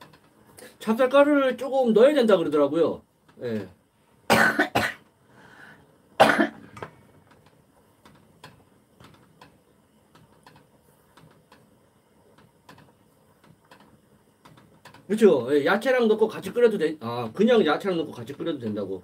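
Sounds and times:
person coughing: 0:04.3 - 0:05.0, 0:06.2 - 0:06.6.

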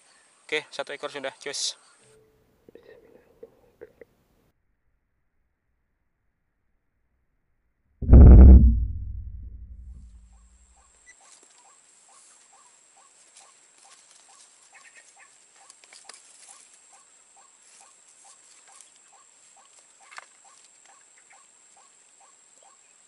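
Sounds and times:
high-pitched whine: 0:08.0 - 0:10.2.

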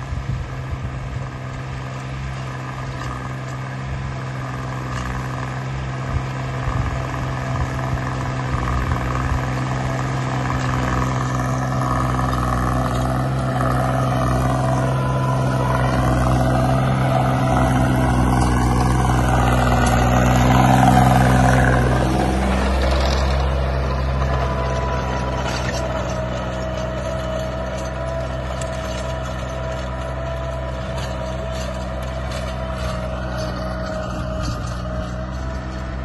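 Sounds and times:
steady whine: 0:00.0 - 0:36.0
tractor engine under load: 0:00.0 - 0:36.0.

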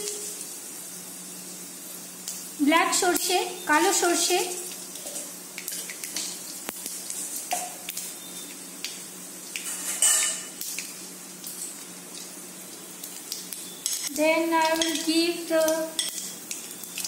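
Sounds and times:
seeds sizzling in hot oil: 0:00.0 - 0:17.0
seeds popping and crackling: 0:10.5 - 0:17.0.

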